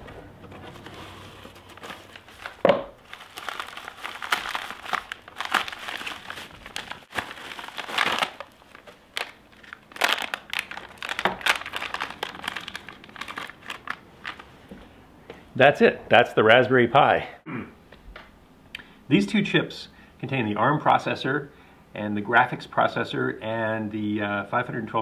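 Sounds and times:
bubble wrap and plastic crinkling: 0:00.0 - 0:14.6.

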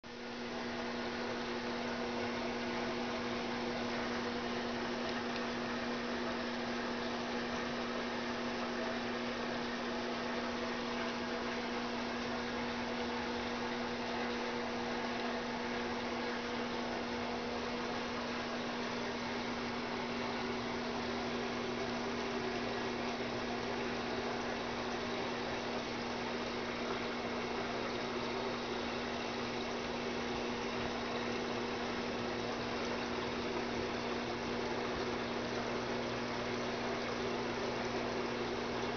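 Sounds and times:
constant hiss: 0:00.1 - 0:38.9
electrical hum: 0:00.1 - 0:38.9.

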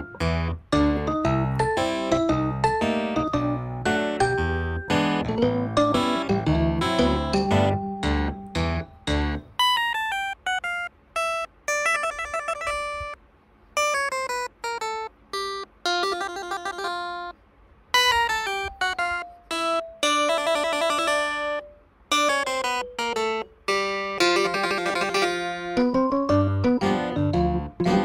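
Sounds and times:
light melody of bright notes: 0:00.0 - 0:13.2, 0:13.8 - 0:17.4, 0:18.0 - 0:28.0.

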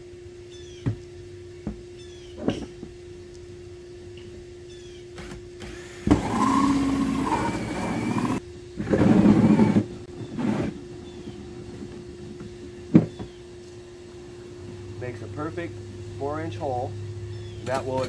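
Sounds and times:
drill cutting plastic: 0:05.2 - 0:08.4, 0:09.2 - 0:09.9.

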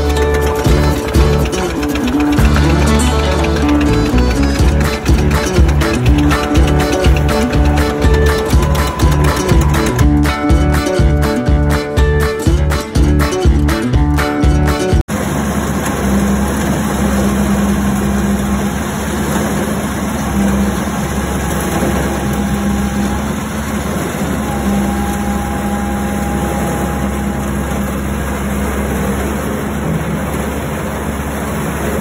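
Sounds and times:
guitar music: 0:00.0 - 0:15.0
excavator engine running: 0:00.0 - 0:32.0
faint high whine: 0:20.0 - 0:29.5.

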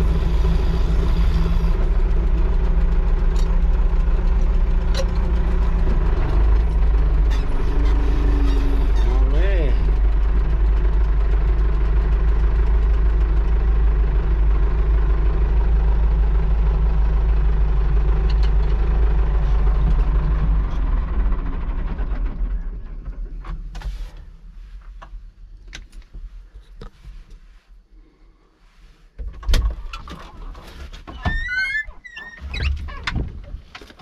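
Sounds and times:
tractor engine running: 0:00.0 - 0:27.0
sharp clicks and knocks: 0:18.2 - 0:18.8.

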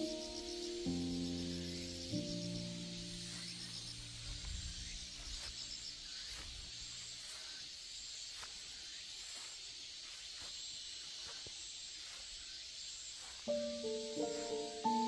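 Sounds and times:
low background music: 0:00.0 - 0:04.8, 0:13.5 - 0:15.0
insect chorus: 0:00.0 - 0:15.0.

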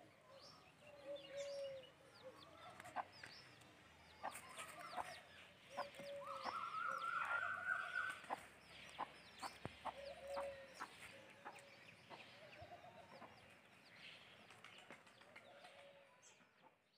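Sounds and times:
small birds chirping: 0:00.0 - 0:16.9
chickens clucking: 0:01.6 - 0:03.6, 0:04.2 - 0:13.6.

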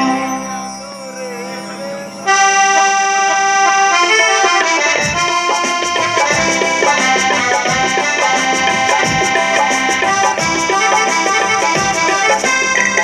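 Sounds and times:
reedy keyboard melody: 0:00.0 - 0:13.0
hand drums beat: 0:04.6 - 0:13.0.

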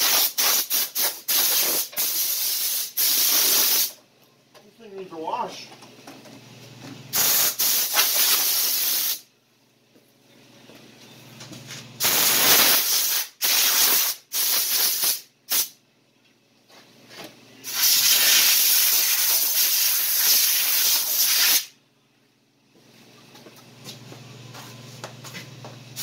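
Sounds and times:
air blow gun hissing: 0:00.0 - 0:04.0, 0:07.1 - 0:09.2, 0:12.0 - 0:15.8, 0:17.6 - 0:21.7.

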